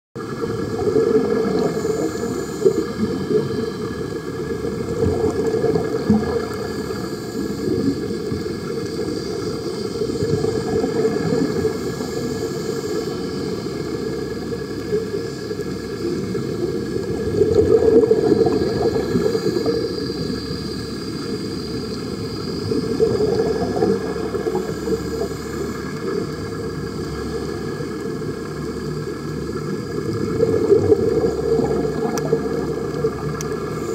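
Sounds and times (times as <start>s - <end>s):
bubbling from diving helmets: 0.2s - 33.9s
faint steady hum: 0.2s - 33.9s
muffled underwater rumble: 0.2s - 33.9s.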